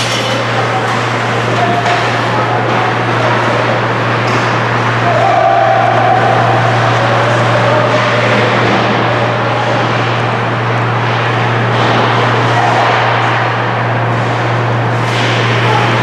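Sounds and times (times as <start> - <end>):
constant low hum: 0.0 - 16.0
ice arena noise wash: 0.0 - 16.0.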